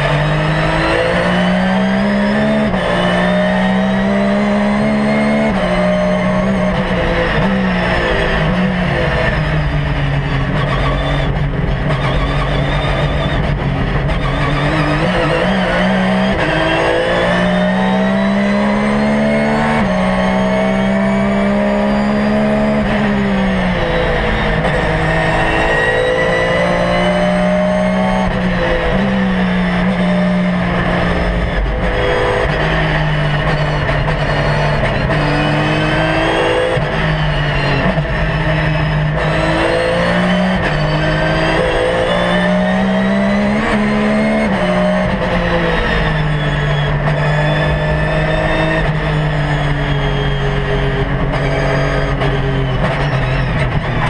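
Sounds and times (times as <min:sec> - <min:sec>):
race car engine shifting gears: 0:00.0 - 0:54.0.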